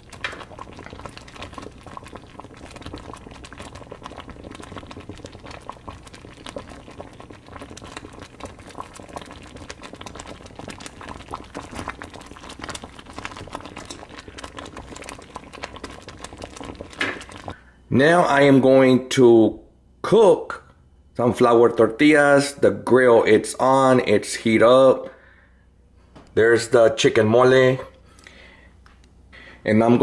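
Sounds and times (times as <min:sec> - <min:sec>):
sauce bubbling in a saucepan: 0:00.0 - 0:17.9.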